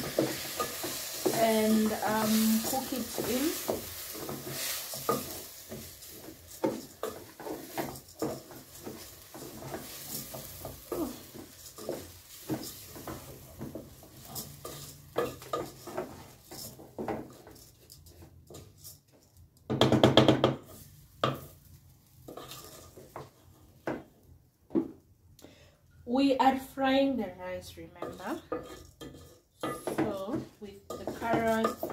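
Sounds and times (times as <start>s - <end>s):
rice sizzling: 0.0s - 19.3s, 20.5s - 24.2s, 26.5s - 31.9s
spoon scraping metal pot: 22.3s - 23.0s, 28.0s - 31.9s.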